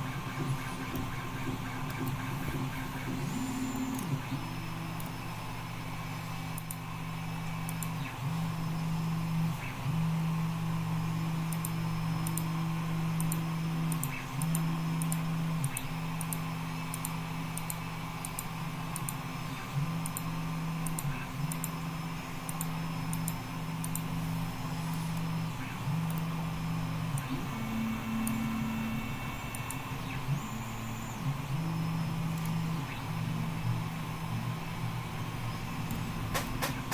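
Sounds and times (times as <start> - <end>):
steady low hum: 0.0 - 36.9
computer mouse clicking: 0.8 - 3.2, 6.5 - 6.8, 7.6 - 8.1, 11.5 - 12.5, 13.2 - 19.2, 20.0 - 21.8, 22.4 - 24.1, 28.2 - 28.4, 29.5 - 29.8, 32.3 - 32.6.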